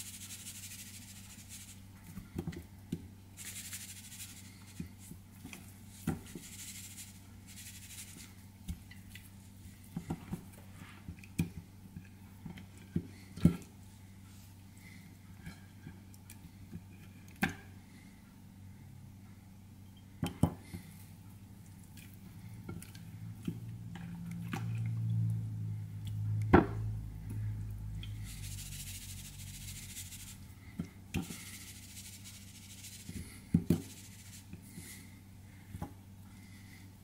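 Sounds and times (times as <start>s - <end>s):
soft hiss: 0.0s - 2.3s, 3.3s - 11.1s, 27.3s - 37.0s
steady low hum: 0.0s - 37.0s.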